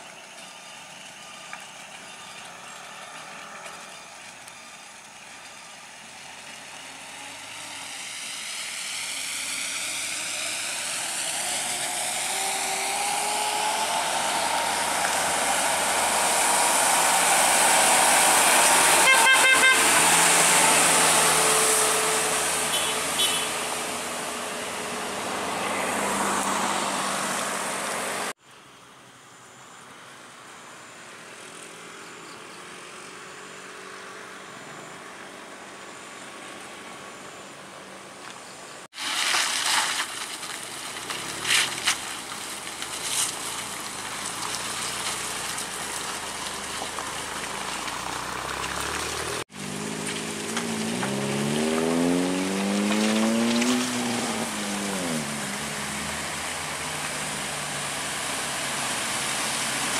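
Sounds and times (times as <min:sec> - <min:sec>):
quiet outdoor background: 0:00.0 - 0:19.6, 0:27.8 - 0:59.9
diesel truck passing: 0:01.0 - 0:28.4, 0:39.3 - 0:59.9
truck horn toots: 0:18.8 - 0:24.0.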